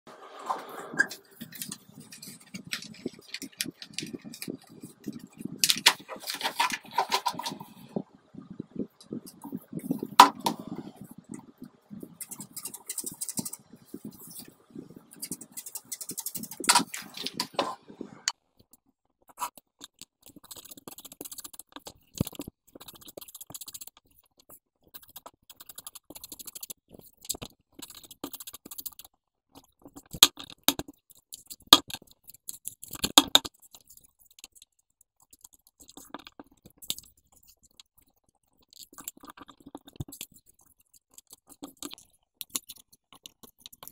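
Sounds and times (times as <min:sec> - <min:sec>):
paper rustling and crinkling: 0:00.5 - 0:07.8, 0:15.2 - 0:17.8
paper crackles and taps: 0:01.4 - 0:07.7, 0:15.2 - 0:17.8.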